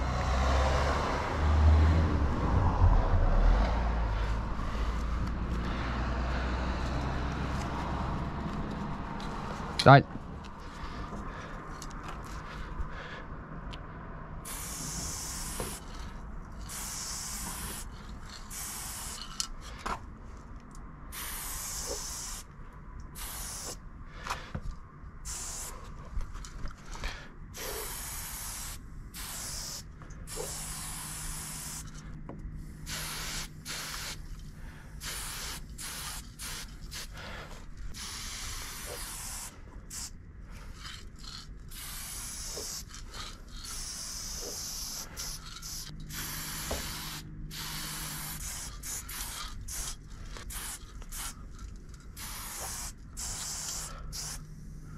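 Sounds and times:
spray paint can hissing: 0:14.4 - 0:19.8, 0:21.1 - 0:22.5, 0:23.1 - 0:23.8, 0:25.2 - 0:25.9, 0:27.6 - 0:32.0, 0:32.6 - 0:34.4, 0:35.0 - 0:54.5.

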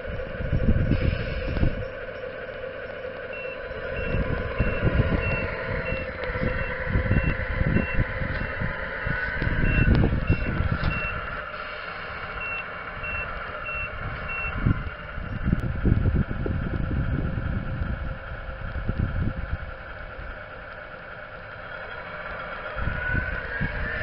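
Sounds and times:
reversing beeper: 0:00.0 - 0:15.3, 0:22.3 - 0:24.0
wind buffeting microphone: 0:00.0 - 0:20.6, 0:21.9 - 0:24.0
simulated diesel engine: 0:00.0 - 0:24.0.

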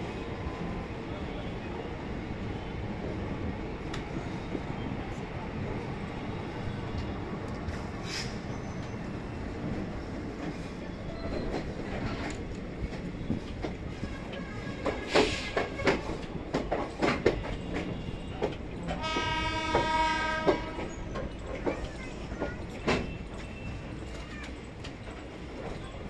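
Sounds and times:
train rumbling: 0:00.0 - 0:26.0
wheels clicking over rail joints: 0:11.2 - 0:26.0
train horn: 0:18.0 - 0:21.1.

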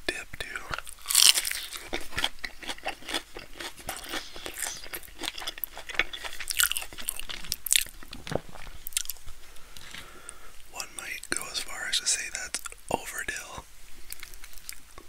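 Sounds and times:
crunchy food chewing: 0:00.4 - 0:10.4, 0:14.0 - 0:15.0.

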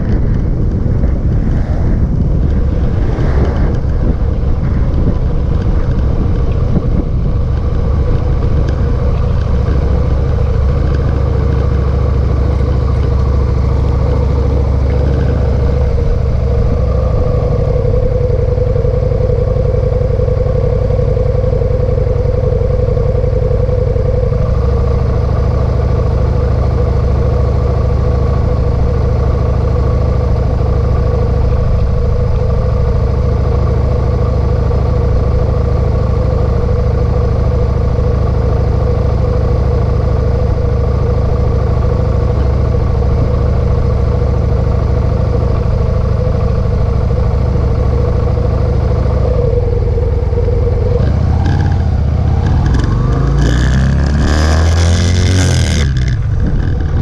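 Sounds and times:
wind buffeting microphone: 0:00.0 - 0:19.8, 0:55.8 - 0:57.0
motorcycle engine idling and revving: 0:00.0 - 0:57.0.

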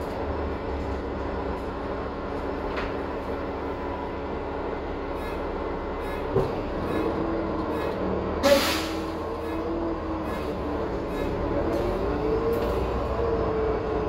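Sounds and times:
bus diesel engine running: 0:00.0 - 0:14.0
air hiss: 0:08.4 - 0:09.1.

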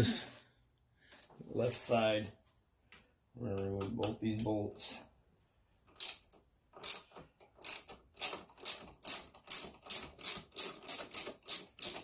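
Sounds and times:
ratchet wrench clicking: 0:05.9 - 0:12.0.

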